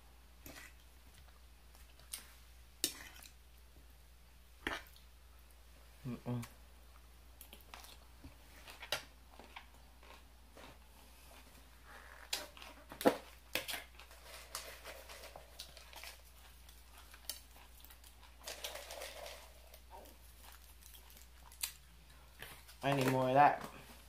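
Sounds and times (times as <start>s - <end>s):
dry noodles rustling onto salad: 13.6s - 21.8s.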